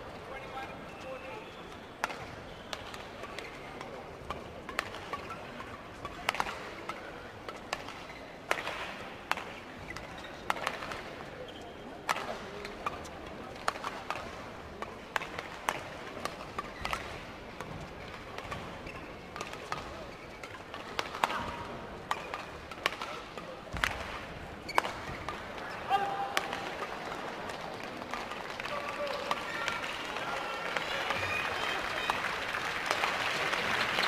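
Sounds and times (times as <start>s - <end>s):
rackets hitting shuttlecock: 2.0s - 11.1s, 12.0s - 29.9s.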